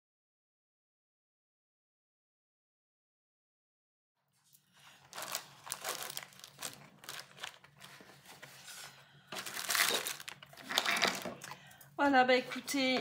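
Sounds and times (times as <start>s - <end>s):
plastic packaging crinkling: 4.8s - 11.6s.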